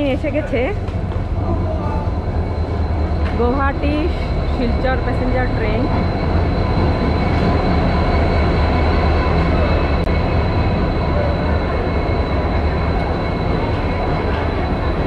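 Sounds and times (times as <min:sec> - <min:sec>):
train rumbling: 0:00.0 - 0:15.0.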